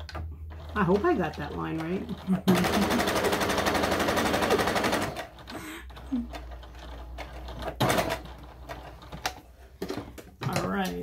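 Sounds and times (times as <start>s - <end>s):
sewing machine stitching: 0.0s - 10.9s.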